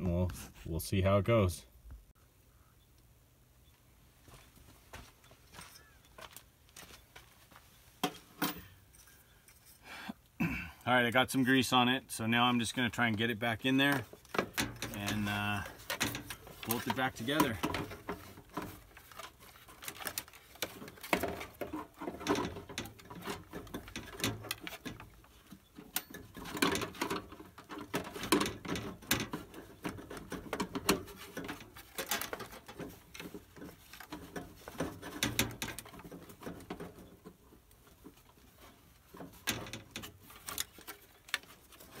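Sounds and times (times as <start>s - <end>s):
clicks and scrapes of handled metal: 8.0s - 9.9s, 13.8s - 42.0s.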